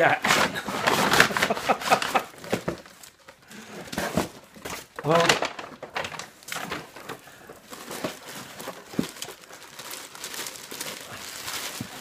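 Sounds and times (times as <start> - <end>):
packing paper crumpling: 4.1 - 12.0.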